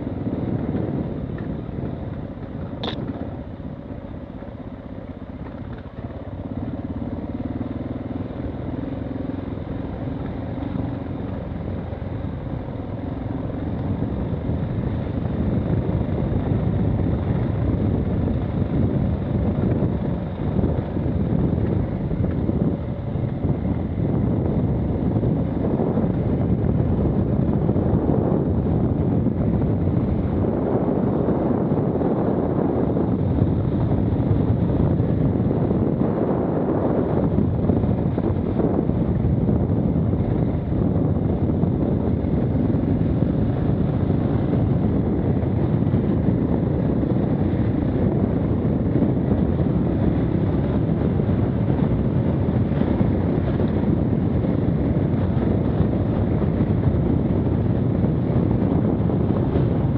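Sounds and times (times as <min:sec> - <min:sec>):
motorcycle engine running: 0:00.0 - 0:59.9
wind buffeting microphone: 0:00.0 - 0:59.9.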